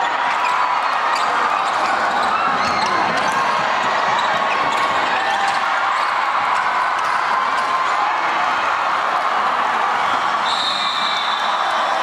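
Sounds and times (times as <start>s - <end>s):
sneakers squeaking: 0.0s - 7.2s.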